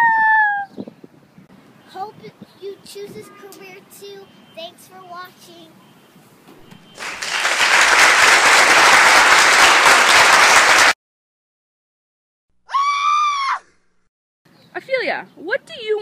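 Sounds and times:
crowd applauding: 6.8s - 11.0s.

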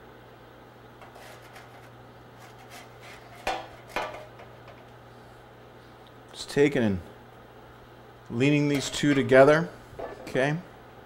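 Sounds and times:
metal spatula scraping: 1.0s - 4.0s.

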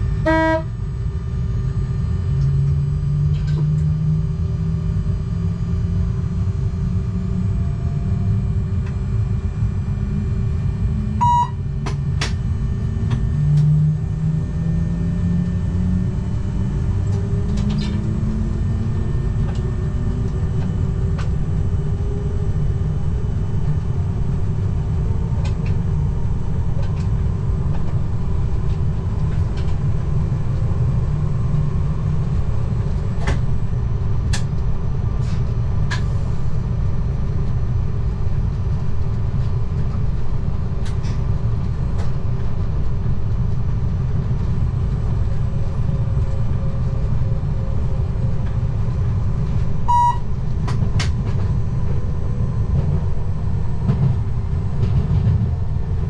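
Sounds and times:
electric train motor whine and rumble: 0.0s - 56.0s
sharp clicks from track: 11.8s - 12.4s.

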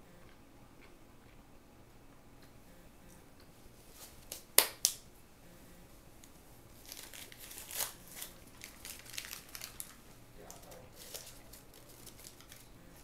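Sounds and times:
paper napkin crinkling: 6.8s - 13.0s.

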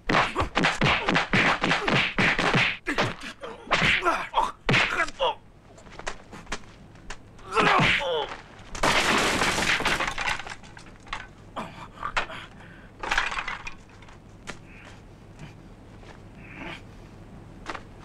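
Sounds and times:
man shouting: 2.9s - 5.4s
debris clattering: 5.7s - 11.5s, 12.1s - 14.7s
wood breaking crash: 7.4s - 11.4s, 13.0s - 14.6s.

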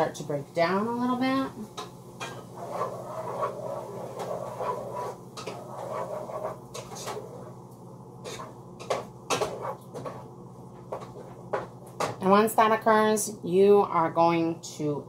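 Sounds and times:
steady low hum: 0.0s - 15.0s
spoon stirring tomatoes in pot: 1.8s - 7.6s, 8.2s - 10.3s.

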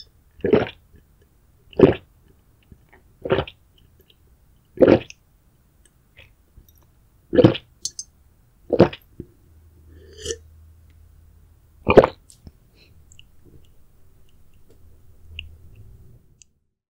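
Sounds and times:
person burping: 10.0s - 10.4s, 11.9s - 12.2s.

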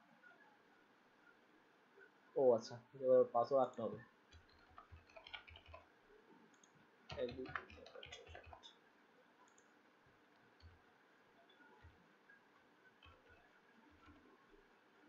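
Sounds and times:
keyboard typing: 4.3s - 5.9s, 6.5s - 8.8s, 10.3s - 10.8s, 12.8s - 14.3s.

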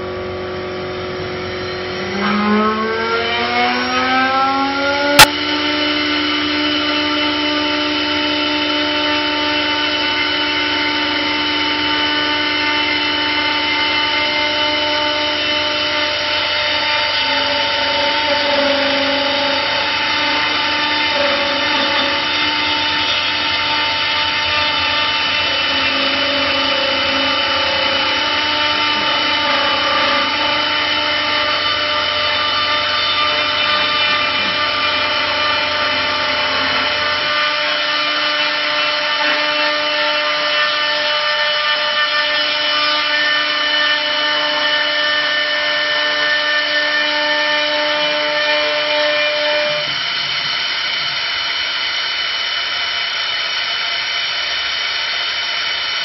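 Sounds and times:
lathe motor whine: 0.0s - 56.0s
motor spinning up: 0.2s - 40.9s.

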